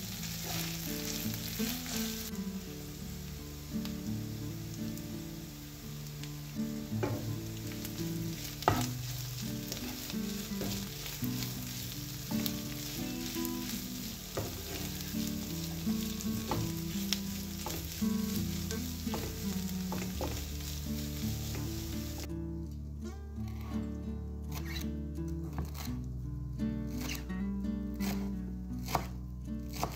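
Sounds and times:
meat and onions sizzling in a pan: 0:00.0 - 0:22.3
wooden spatula scraping a pan: 0:00.3 - 0:02.2, 0:07.0 - 0:22.3.

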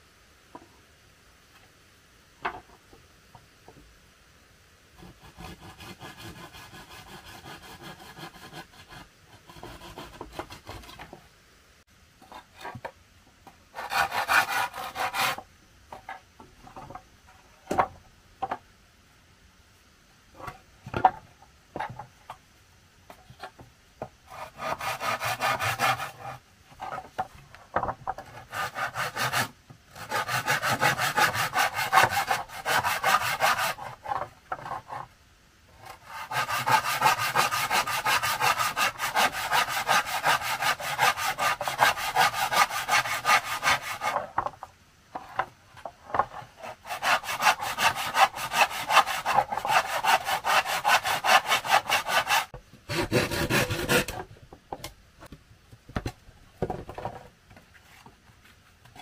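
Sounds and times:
hand saw cutting wood: 0:05.0 - 0:11.0, 0:13.7 - 0:15.5, 0:24.3 - 0:26.4, 0:28.2 - 0:35.1, 0:35.8 - 0:44.4, 0:46.2 - 0:54.2.

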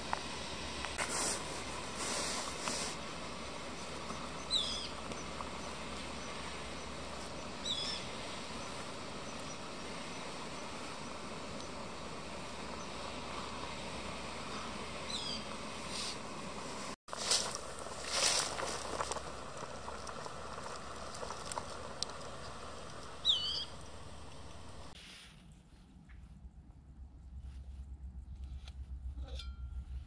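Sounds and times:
gas stove burner hissing: 0:00.0 - 0:19.2.

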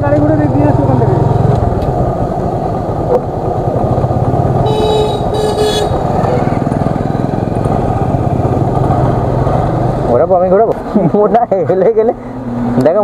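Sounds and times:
motorcycle engine running: 0:00.0 - 0:11.9
vehicle horn beeping: 0:04.6 - 0:06.1.

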